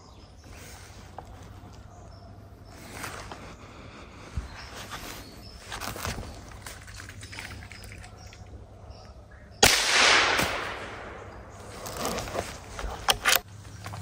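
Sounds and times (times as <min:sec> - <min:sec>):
rustling noise: 0:04.5 - 0:08.1, 0:11.6 - 0:14.0
rifle shot: 0:09.6 - 0:11.6.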